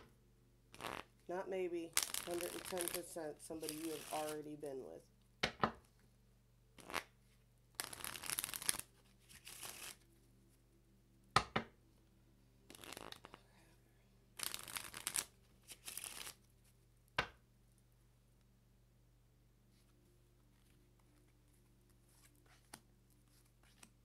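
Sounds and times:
cards being shuffled: 1.9s - 4.4s, 6.8s - 7.1s, 7.8s - 10.1s, 12.7s - 13.4s, 14.4s - 16.8s, 20.5s - 24.0s.

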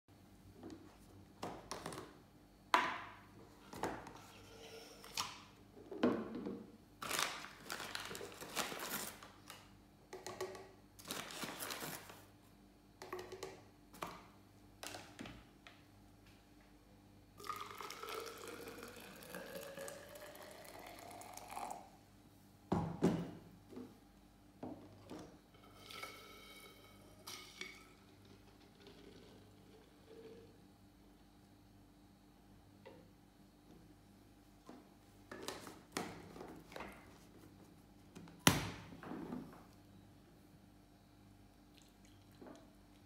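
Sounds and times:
water pouring into press: 17.4s - 21.8s
coffee being scooped: 17.5s - 21.8s.

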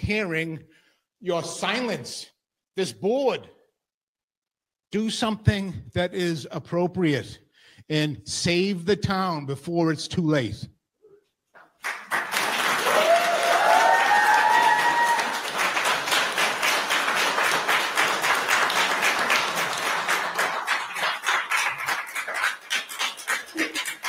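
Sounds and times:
crowd applauding: 11.8s - 24.0s
person whooping: 12.8s - 15.4s.

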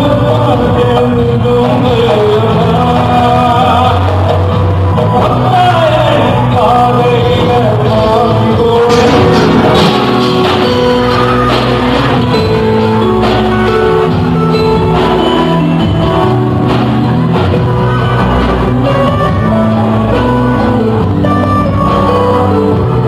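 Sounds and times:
man singing into a microphone: 0.0s - 10.9s, 17.8s - 23.0s
bass guitar: 0.0s - 23.0s
drum kit: 0.0s - 23.0s
keyboard: 0.0s - 23.0s.

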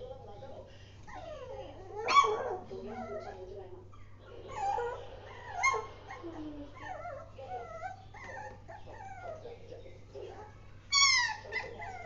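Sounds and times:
puppy whining: 1.0s - 12.0s
puppy yip: 1.1s - 3.4s, 10.9s - 12.0s.

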